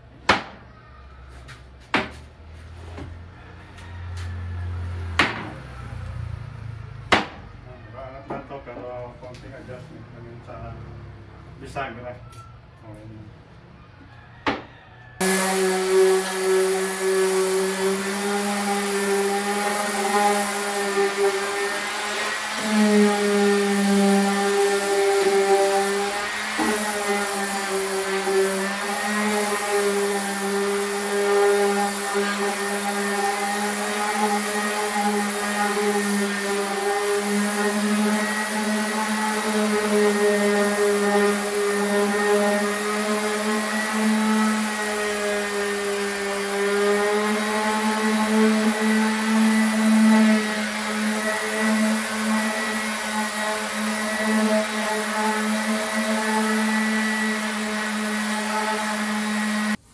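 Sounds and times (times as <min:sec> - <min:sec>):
orbital sander running: 0:15.2 - 0:59.8.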